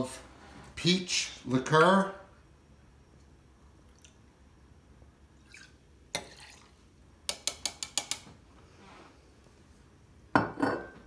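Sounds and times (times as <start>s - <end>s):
liqueur pouring into jigger: 5.4s - 6.8s.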